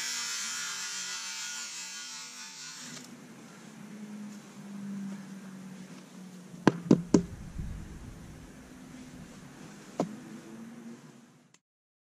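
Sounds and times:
sharp knocks: 0:06.7 - 0:07.7.

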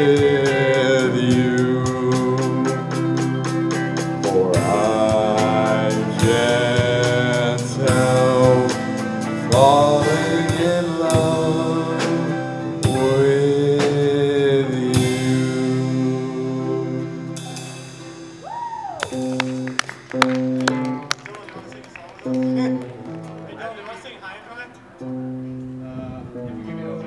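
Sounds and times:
man singing into microphone: 0:00.0 - 0:03.1, 0:04.2 - 0:17.2
live rock band playing: 0:00.0 - 0:23.6
drum hits: 0:09.6 - 0:16.2.

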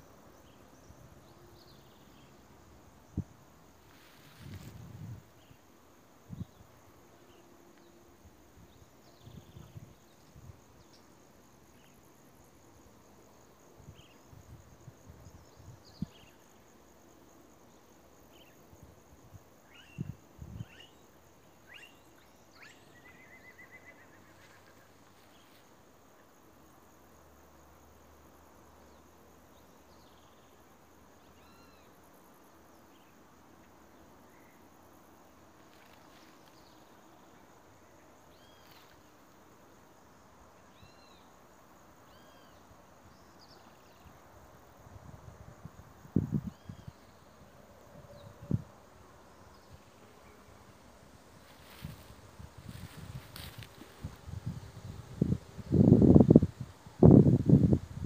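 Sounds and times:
high insect drone: 0:00.0 - 0:58.0.

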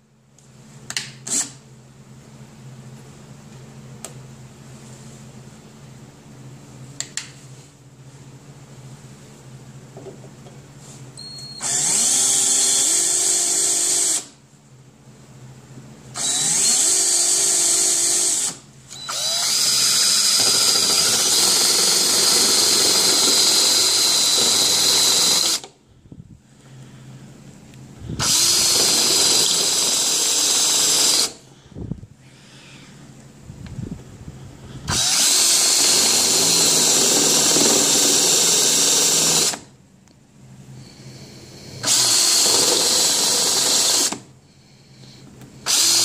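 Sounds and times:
power drill drilling into steel: 0:11.6 - 0:14.3, 0:16.2 - 0:25.7, 0:28.2 - 0:31.4, 0:34.9 - 0:39.7, 0:41.7 - 0:44.2, 0:45.6 - 0:46.0.

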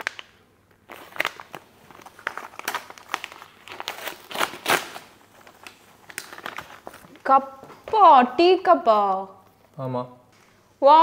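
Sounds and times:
wrapping paper tearing and crinkling: 0:00.0 - 0:07.2.

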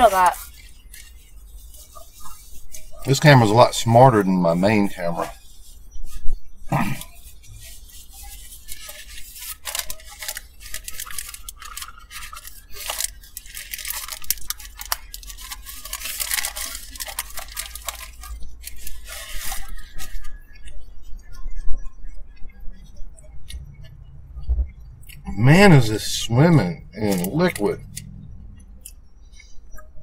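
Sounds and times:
paper wrapper crinkling: 0:00.0 - 0:20.4, 0:25.7 - 0:28.0
close-up eating: 0:06.6 - 0:22.0.

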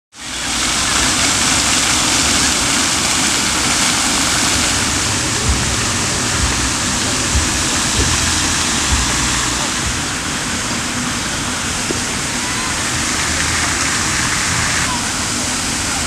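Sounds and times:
water rushing: 0:00.1 - 0:16.0
soft low thumps: 0:04.6 - 0:10.3.

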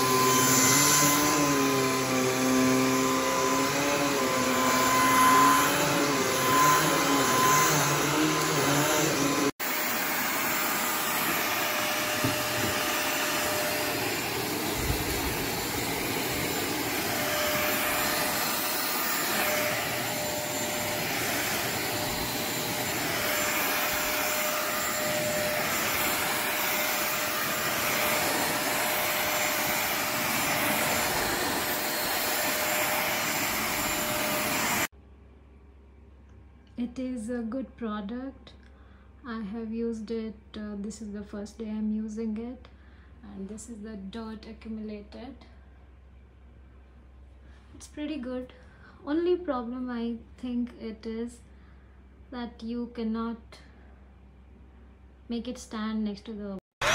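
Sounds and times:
vacuum cleaner motor whine: 0:00.0 - 0:34.9.

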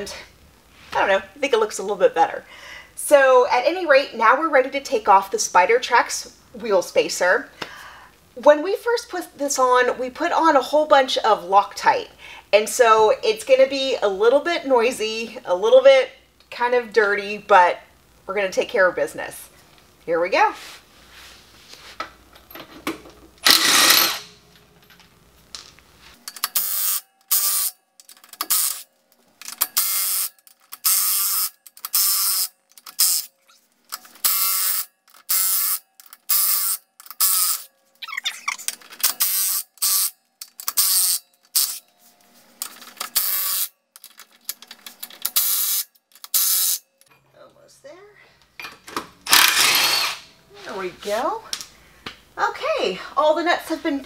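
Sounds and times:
impact wrench hammering: 0:23.4 - 0:24.3, 0:48.7 - 0:50.3.

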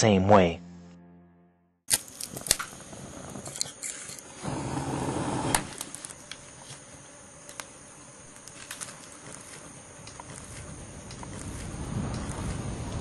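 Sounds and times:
high insect drone: 0:01.9 - 0:13.0
wood fire crackling and popping: 0:01.9 - 0:13.0
rustling noise: 0:08.4 - 0:13.0.

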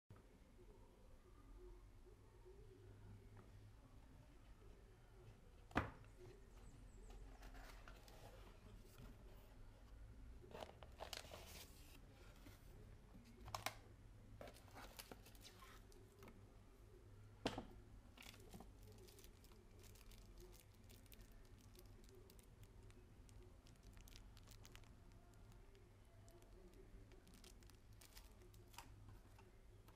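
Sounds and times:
packaging rustling and crinkling: 0:26.5 - 0:28.9.

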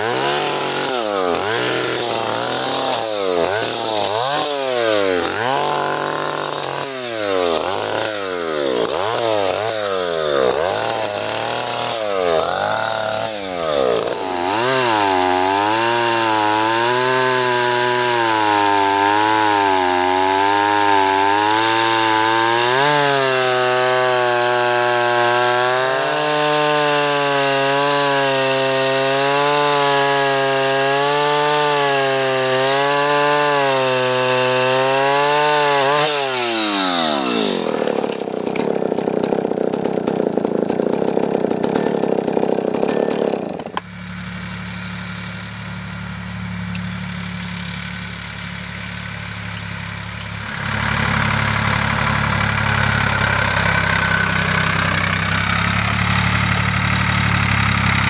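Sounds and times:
chainsaw cutting a log: 0:00.0 - 0:58.0.

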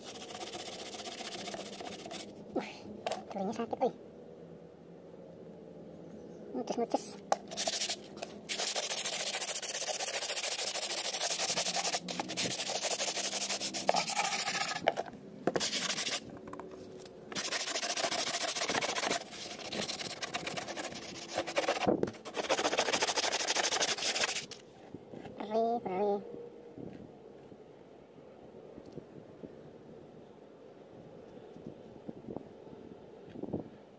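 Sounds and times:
sandpaper rasping on fiberglass: 0:00.0 - 0:02.3, 0:07.5 - 0:14.9, 0:15.6 - 0:16.2, 0:17.3 - 0:24.6.

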